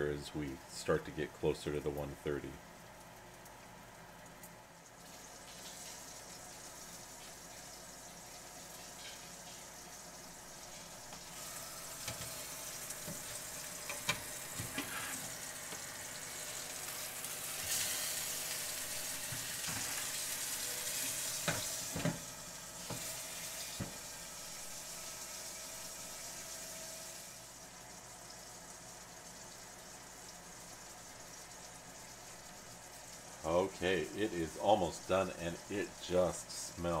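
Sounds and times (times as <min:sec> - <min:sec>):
steak sizzling: 0:04.9 - 0:37.0.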